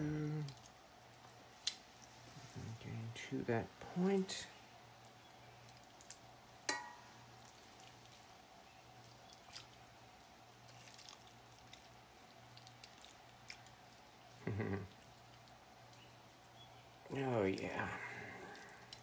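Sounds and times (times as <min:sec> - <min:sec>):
faint hum: 0:00.0 - 0:19.0
metal tap on cast iron pot: 0:06.7 - 0:07.1.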